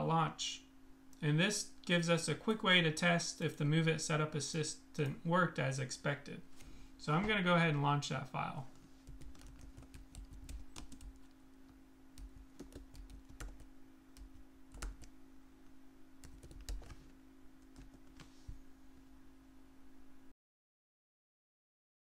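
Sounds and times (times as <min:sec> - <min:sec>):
faint steady hum: 0:00.0 - 0:20.3
computer keyboard typing: 0:09.0 - 0:11.3, 0:12.2 - 0:15.1, 0:16.2 - 0:17.0, 0:17.7 - 0:18.3.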